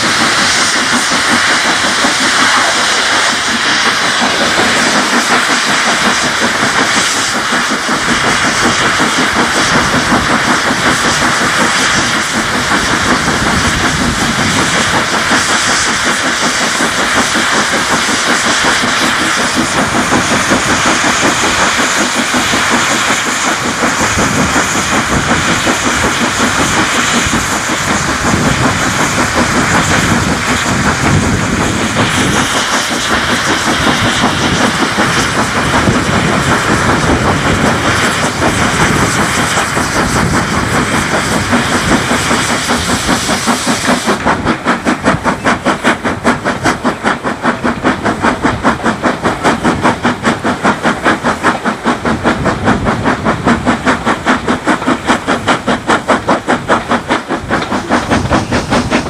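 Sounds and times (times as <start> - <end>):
hiss of steam: 0.0 - 59.0
steam locomotive exhaust beats: 0.0 - 59.0.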